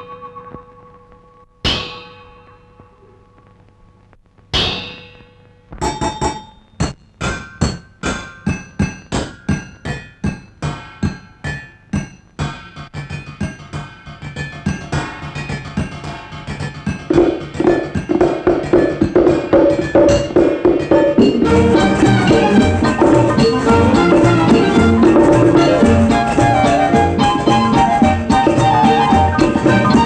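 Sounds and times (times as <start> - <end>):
metal pots clanging as drums: 16.9 - 26.0.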